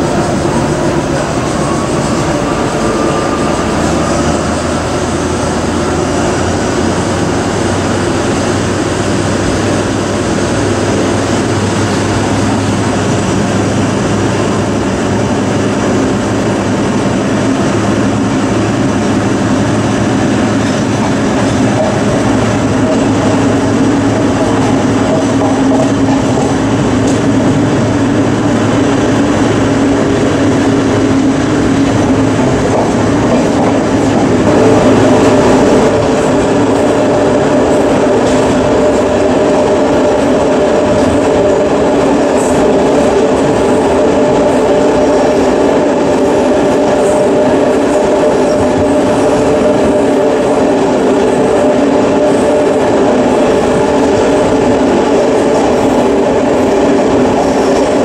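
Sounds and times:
diesel locomotive engine running: 0.0 - 58.0.

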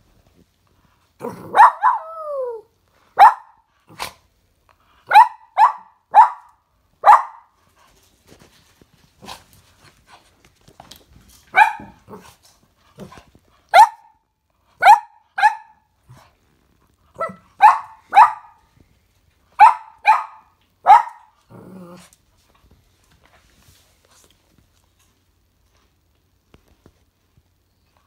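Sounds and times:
puppy barking: 1.4 - 2.4, 3.2 - 4.1, 5.1 - 7.5, 11.5 - 12.2, 13.7 - 14.2, 14.8 - 15.8, 17.2 - 18.6, 19.6 - 21.3.

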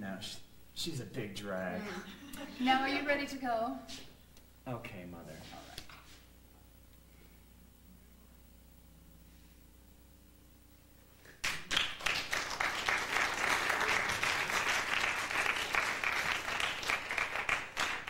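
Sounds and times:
audience applauding: 11.3 - 18.0.

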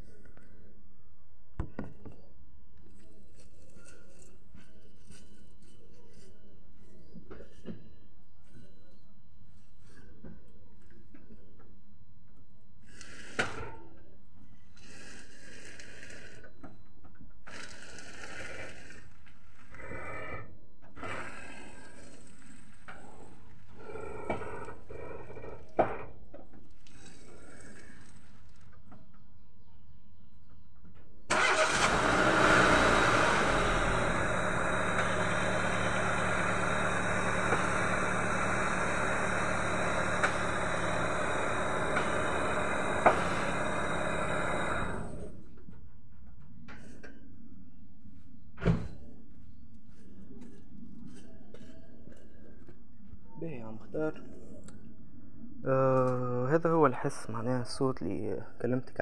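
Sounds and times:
car engine humming: 31.3 - 45.4.

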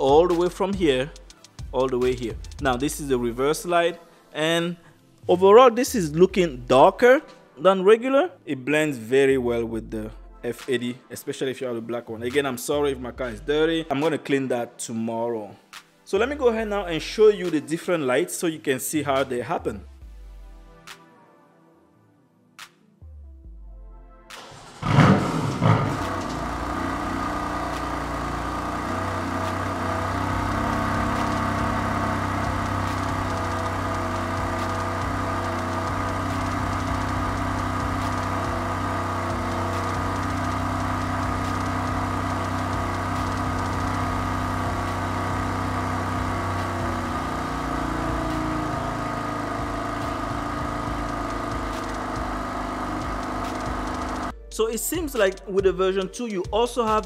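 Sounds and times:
car engine starting and idling: 24.3 - 54.3.

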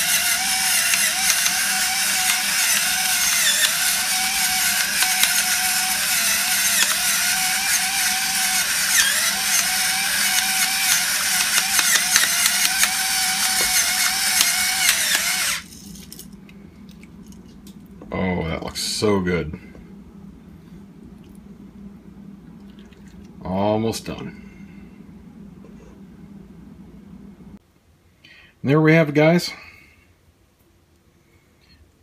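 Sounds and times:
electric pepper grinder whine: 0.0 - 16.3
peppercorns grinding: 0.0 - 17.7.

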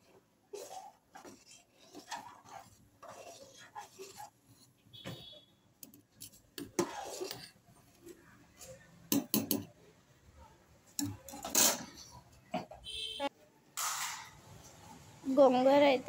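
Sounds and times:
rice boiling: 0.0 - 4.6, 6.6 - 8.5
ladle scraping metal pot: 0.0 - 4.8, 6.1 - 7.6, 11.0 - 12.3.

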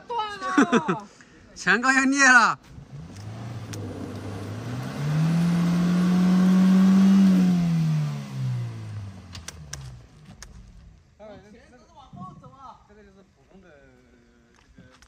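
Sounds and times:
car engine revving hard: 2.8 - 10.1.

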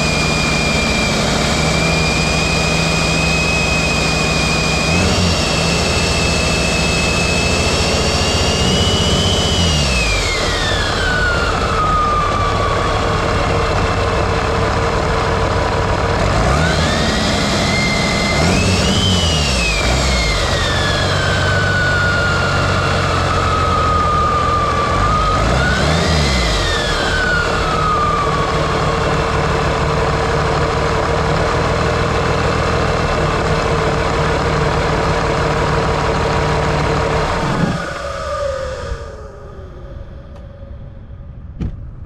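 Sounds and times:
diesel engine revving: 0.0 - 42.0
high whine: 0.0 - 42.0.

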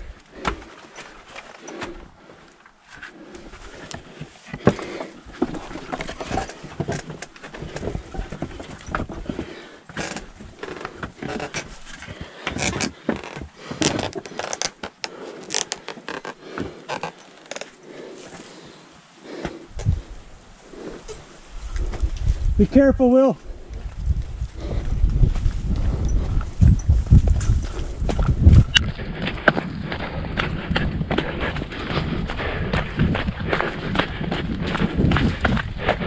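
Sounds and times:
feet striking ladder rungs: 0.0 - 18.5, 25.4 - 36.0
hands gripping ropes: 0.0 - 20.1.

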